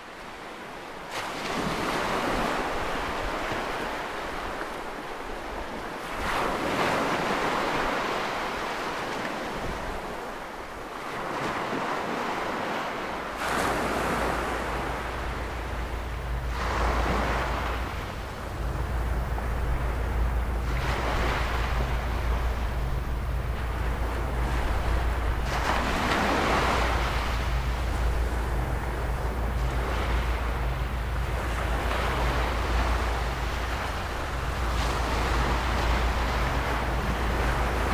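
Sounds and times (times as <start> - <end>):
ocean waves breaking: 0.0 - 37.9
deep low rumble: 14.2 - 37.9.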